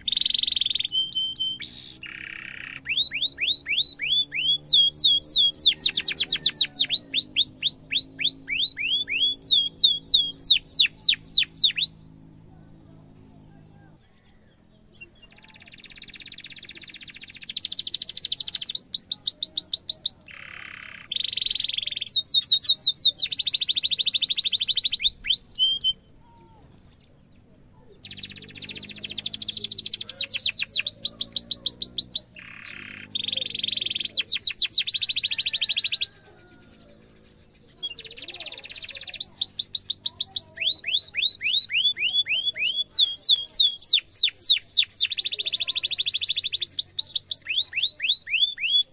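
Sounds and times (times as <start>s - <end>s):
canary singing trills: 0.0s - 48.9s.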